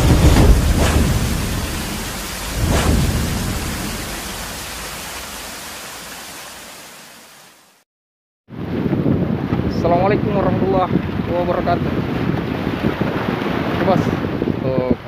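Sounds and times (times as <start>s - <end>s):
rushing whoosh: 0.0s - 6.4s.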